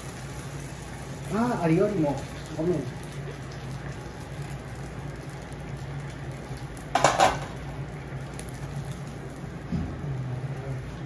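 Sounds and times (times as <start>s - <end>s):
faint frying sizzle: 0.0s - 11.0s
steady low hum: 2.2s - 11.0s.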